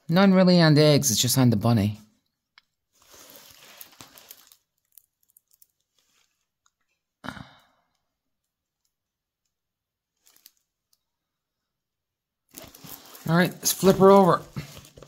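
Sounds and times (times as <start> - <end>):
plastic film crinkling: 2.9 - 6.5, 10.1 - 11.0, 12.5 - 15.0.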